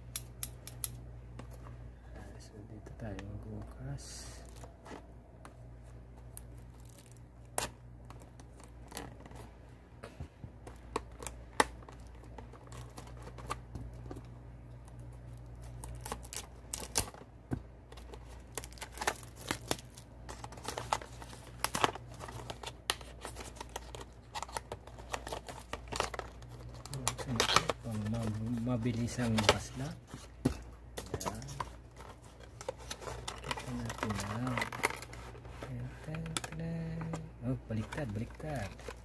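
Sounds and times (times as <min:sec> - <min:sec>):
steady low hum: 0:00.0 - 0:39.0
packaging being torn open: 0:15.6 - 0:17.2, 0:18.0 - 0:28.4.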